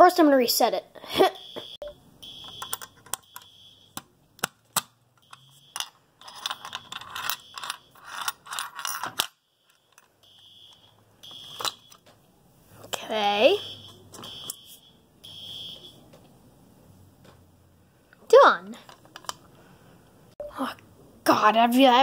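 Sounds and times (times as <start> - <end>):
fire alarm high tone blasts: 1.1 - 4.0, 5.2 - 5.8, 9.4 - 12.0, 13.4 - 16.0.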